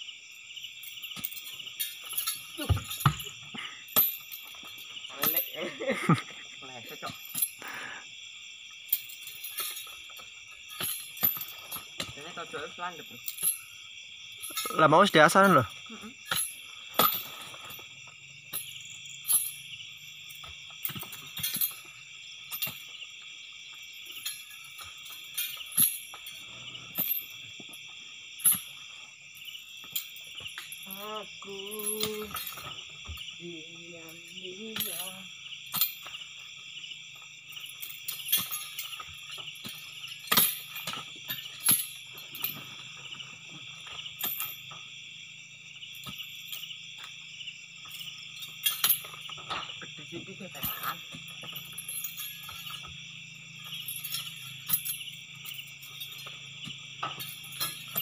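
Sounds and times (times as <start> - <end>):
crickets chirring: 0.0 - 58.0
fruit bunches knocking and thudding: 2.1 - 6.2, 48.9 - 51.8, 56.1 - 58.0.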